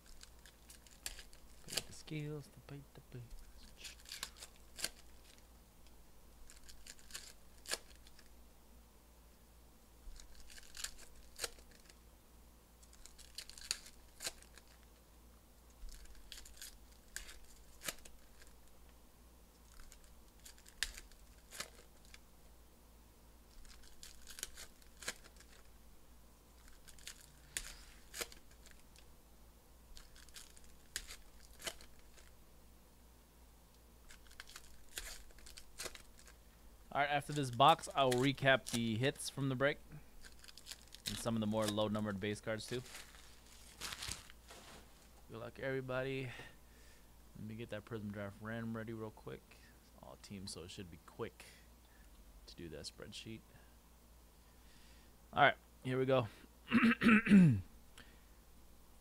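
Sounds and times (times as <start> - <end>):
card wrappers crinkling and tearing: 0.0 - 2.2, 3.2 - 5.4, 6.4 - 8.3, 10.1 - 12.0, 12.8 - 14.9, 15.8 - 18.7, 19.6 - 22.2, 23.5 - 25.7, 26.6 - 29.1, 29.9 - 32.3, 34.0 - 36.4, 37.1 - 39.4, 40.2 - 44.8.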